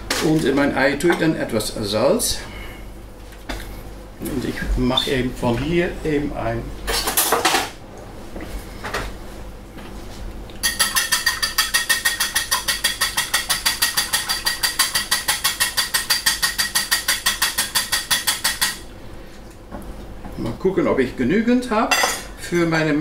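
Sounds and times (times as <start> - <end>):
whisk clacking against bowl: 10.6 - 18.8.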